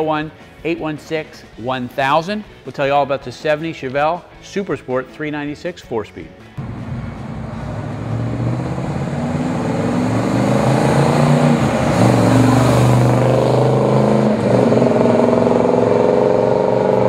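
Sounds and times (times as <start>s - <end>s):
car engine driving: 6.6s - 17.0s.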